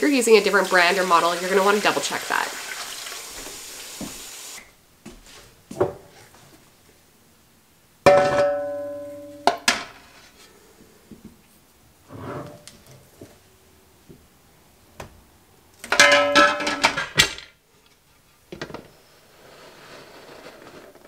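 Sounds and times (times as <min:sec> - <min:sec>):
water pouring into a pot: 0:00.1 - 0:04.6
metal pot ringing like a bell: 0:08.1 - 0:09.5.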